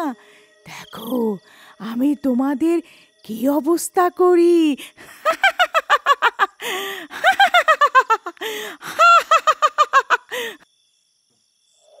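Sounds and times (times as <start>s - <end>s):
witch cackling laugh: 5.0s - 10.6s.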